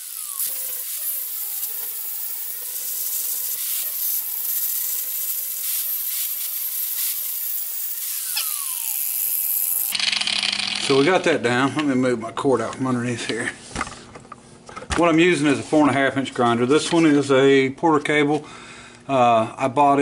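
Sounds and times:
angle grinder grinding metal: 0:00.0 - 0:11.4.

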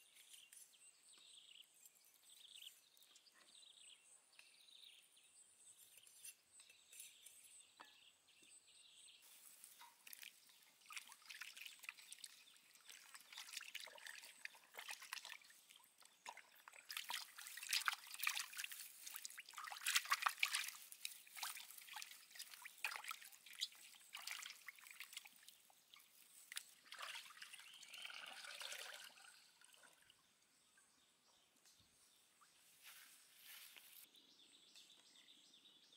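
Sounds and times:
water splashing in metal basin: 0:09.8 - 0:25.7, 0:26.6 - 0:30.0.

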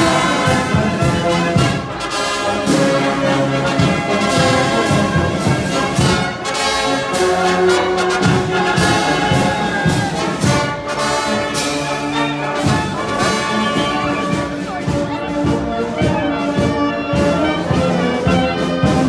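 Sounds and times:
drums keeping steady beat: 0:00.0 - 0:19.0
marching band playing: 0:00.0 - 0:19.0.

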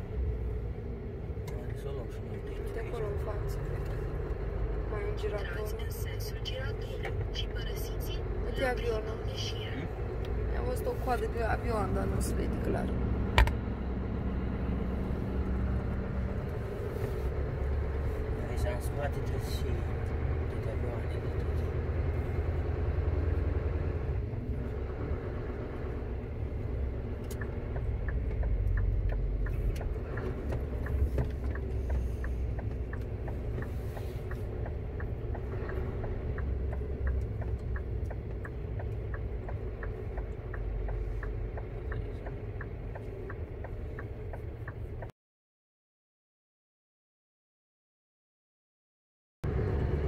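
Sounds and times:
turn signal ticking: 0:00.0 - 0:16.6, 0:17.4 - 0:45.1
lorry engine running: 0:00.0 - 0:45.1.

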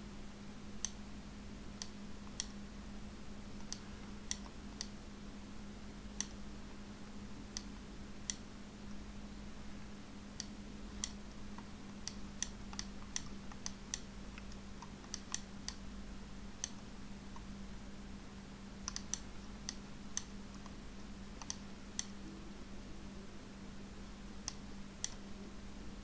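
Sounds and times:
steady low hum: 0:00.0 - 0:26.0
mouse and keyboard clicks: 0:10.4 - 0:15.8, 0:18.8 - 0:20.8, 0:21.4 - 0:22.2.

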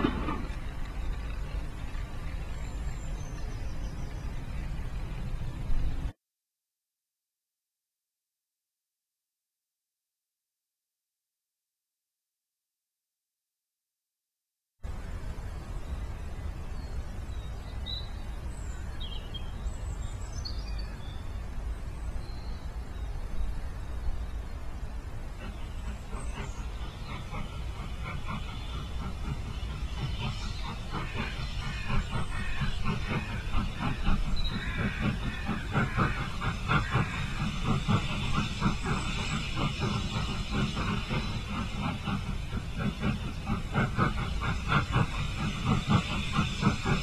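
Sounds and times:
steady low rumble: 0:00.0 - 0:06.1
steam hiss and low rumble: 0:00.0 - 0:06.1, 0:14.8 - 0:47.0
steam locomotive chuffing: 0:00.0 - 0:06.1, 0:14.9 - 0:47.0.

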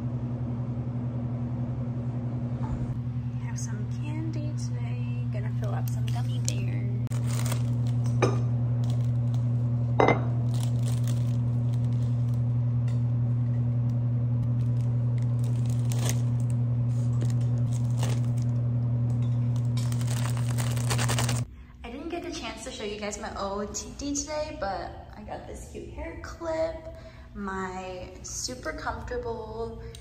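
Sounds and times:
steady low hum: 0:00.0 - 0:30.0
plastic bag crinkling: 0:07.1 - 0:08.2, 0:08.8 - 0:09.4, 0:10.4 - 0:12.4, 0:14.4 - 0:18.6, 0:19.5 - 0:21.5
glass lids clinking: 0:10.0 - 0:10.4.

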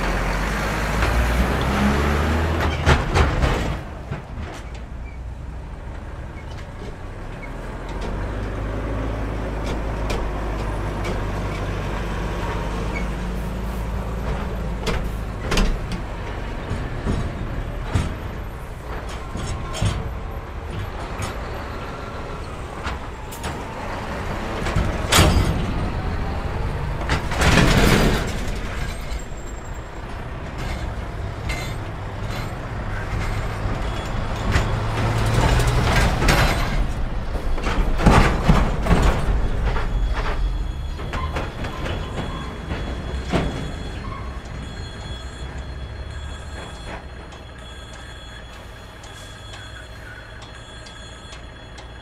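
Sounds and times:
truck diesel engines humming: 0:00.0 - 0:52.0
wheels banging over rails: 0:00.0 - 0:52.0.

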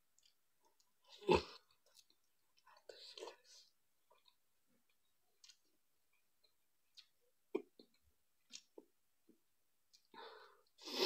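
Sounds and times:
mouth smacks while chewing: 0:04.2 - 0:08.9.

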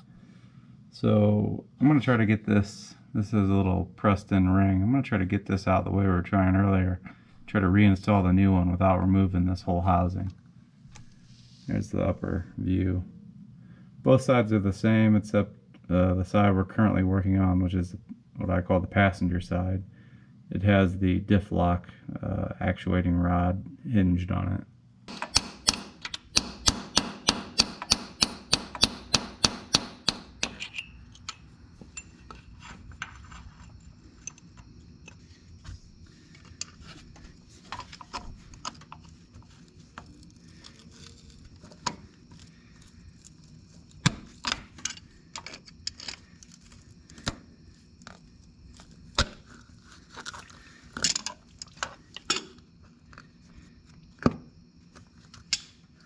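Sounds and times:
metallic clinks and knocks: 0:30.1 - 0:35.2, 0:51.0 - 0:52.6.

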